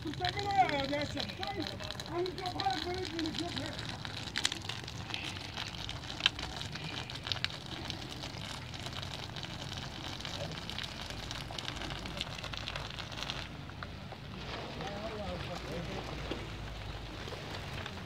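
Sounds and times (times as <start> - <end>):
sharp ticks of water drops: 0.0 - 14.2
sprinklers spraying water on panels: 0.0 - 18.0.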